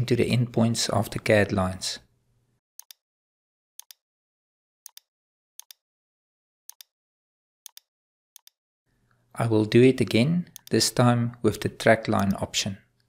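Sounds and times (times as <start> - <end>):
computer mouse clicking: 2.8 - 3.0, 3.8 - 4.0, 4.9 - 5.8, 6.7 - 6.9, 7.7 - 8.6.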